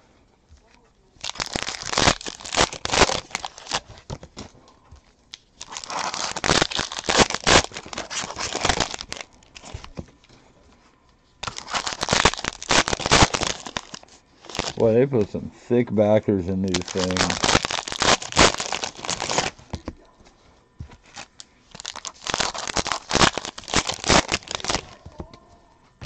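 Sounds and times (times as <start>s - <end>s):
card pack wrappers tearing and crinkling: 1.2s - 4.5s, 5.4s - 10.0s, 11.4s - 15.0s, 16.6s - 20.0s, 21.0s - 25.2s.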